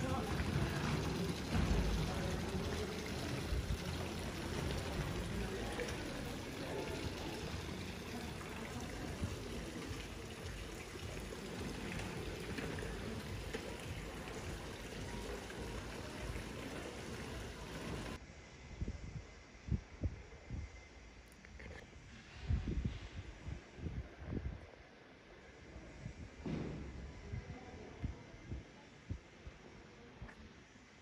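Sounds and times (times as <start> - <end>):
fountain water splashing: 0.0 - 18.2.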